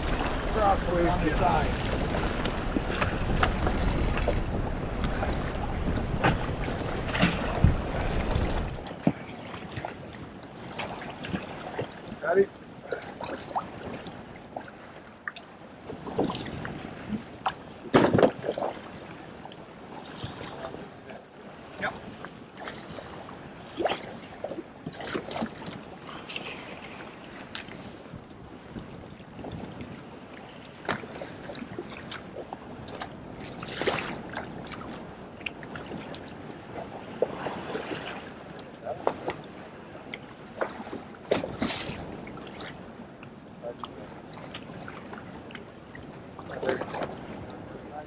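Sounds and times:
splashing: 0.0s - 9.9s
water slapping against boat hull: 0.0s - 12.3s, 12.9s - 19.3s, 21.8s - 30.1s, 30.8s - 47.8s
wind: 0.0s - 48.0s.

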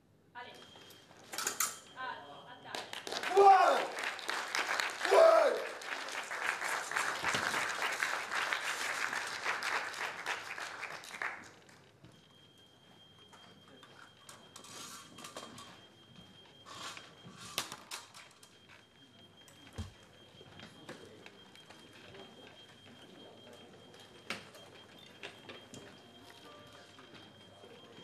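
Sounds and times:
audience applause: 2.8s - 11.8s.

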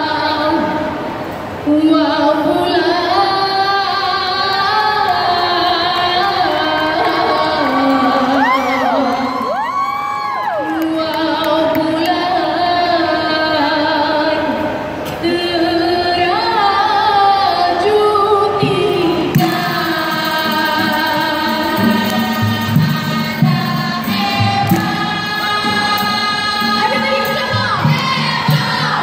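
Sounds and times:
voices singing in harmony: 15.3s - 29.0s.

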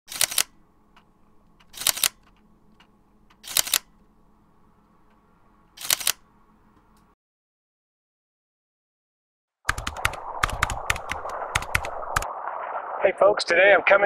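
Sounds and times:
camera shutter double click: 0.1s - 0.6s, 1.7s - 2.2s, 3.4s - 3.9s, 5.8s - 6.2s.

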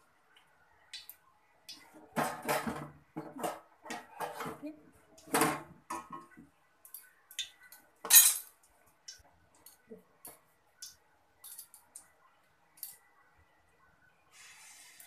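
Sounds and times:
batter sizzling in oil: 14.3s - 15.0s.

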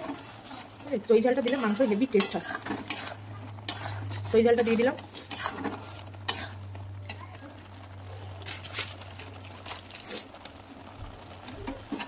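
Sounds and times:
spoon scraping against a pan: 0.0s - 7.5s
spice paste frying in a pan: 0.0s - 12.0s.

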